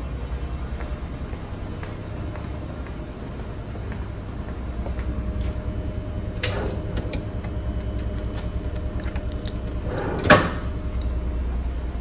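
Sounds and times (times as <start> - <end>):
low steady hum: 0.0 - 12.0
metal drawer clicks and knocks: 9.1 - 10.8.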